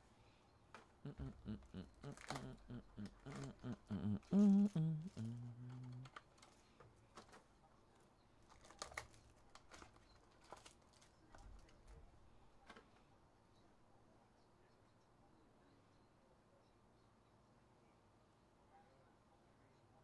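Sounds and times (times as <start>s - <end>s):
wordless voice: 1.0s - 6.1s
wrapper crinkling: 8.5s - 11.7s.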